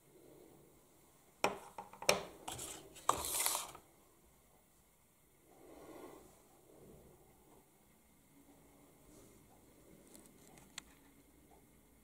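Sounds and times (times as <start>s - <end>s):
packaging scraping rustle: 2.5s - 3.8s.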